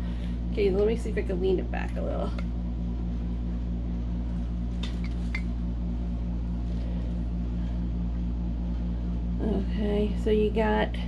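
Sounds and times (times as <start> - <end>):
low mechanical hum with throb: 0.0 - 11.0.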